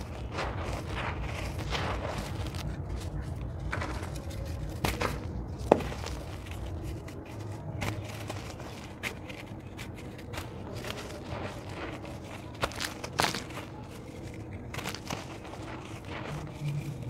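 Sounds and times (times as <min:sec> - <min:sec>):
hands scraping in dry dirt: 0:00.0 - 0:17.0
steady low rumble: 0:00.0 - 0:17.0
dirt block cracking: 0:03.7 - 0:06.5, 0:07.8 - 0:17.0.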